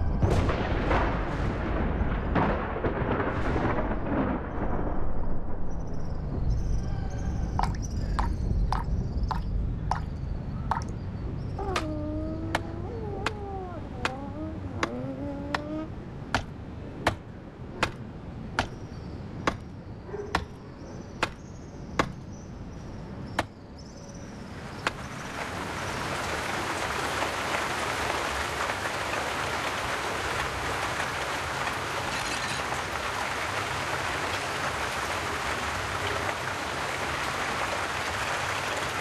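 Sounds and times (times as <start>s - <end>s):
rain downpour: 0.0s - 39.0s
sharp ticks: 10.7s - 10.9s
cat mewing: 11.6s - 15.9s.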